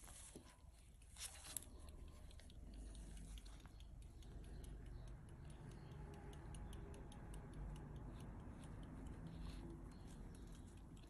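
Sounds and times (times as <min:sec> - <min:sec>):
pocket watch ticking: 0:01.0 - 0:11.0.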